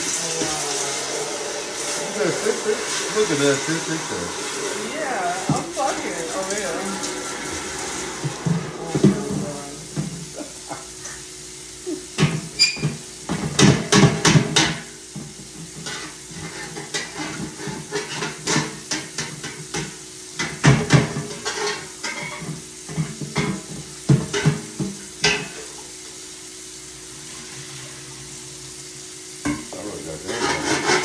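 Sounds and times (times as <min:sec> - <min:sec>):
steady low hum: 0:00.0 - 0:31.0
metal pot clattering: 0:13.5 - 0:25.8, 0:29.5 - 0:31.0.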